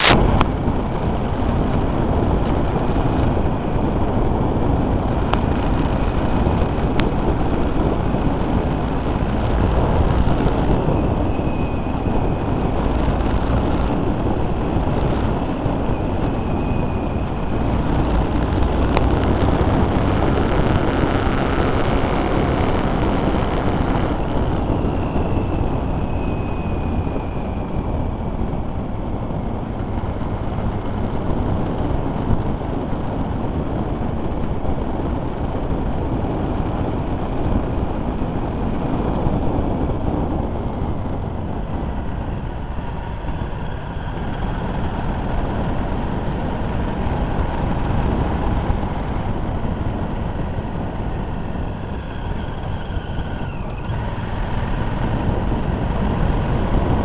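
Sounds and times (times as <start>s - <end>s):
engine whine sliding down in pitch: 0.0s - 34.3s
motorcycle engine and wind rush: 0.0s - 57.0s.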